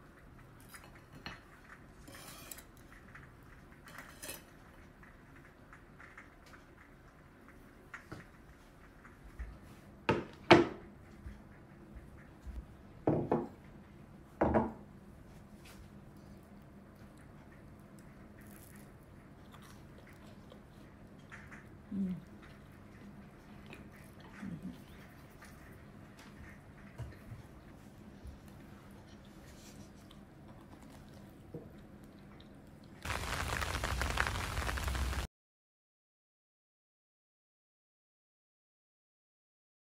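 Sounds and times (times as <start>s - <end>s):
objects knocking on kitchen surfaces: 10.1s - 10.8s, 13.0s - 13.6s, 14.4s - 14.8s
steady rain falling: 33.0s - 35.3s.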